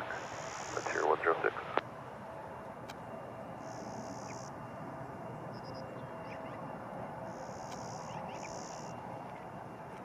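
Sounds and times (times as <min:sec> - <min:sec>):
distant airliner engines idling: 0:00.0 - 0:10.0
birds chirping and trilling: 0:07.3 - 0:09.0.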